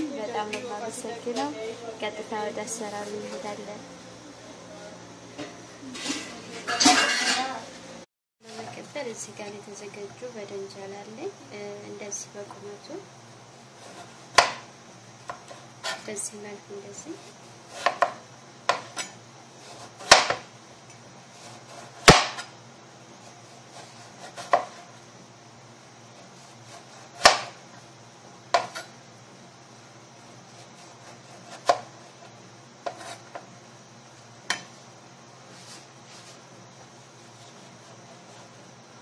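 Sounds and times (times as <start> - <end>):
knife slicing eggplant: 17.2 - 20.5, 23.2 - 25.0, 30.2 - 33.4.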